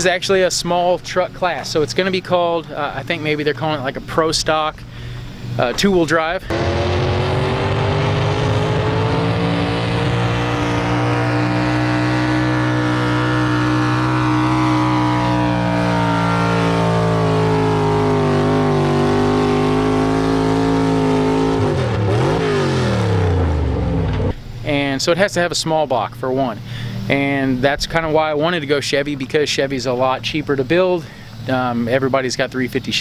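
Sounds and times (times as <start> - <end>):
truck engine at high revs: 6.4 - 24.4.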